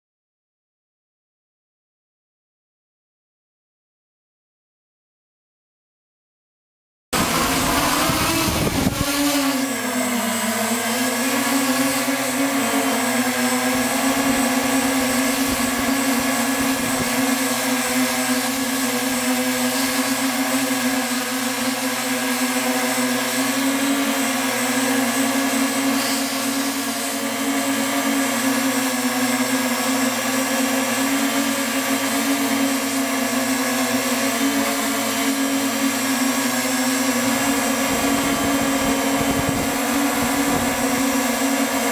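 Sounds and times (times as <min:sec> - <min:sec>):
drone motors humming: 0:07.2 - 0:41.9.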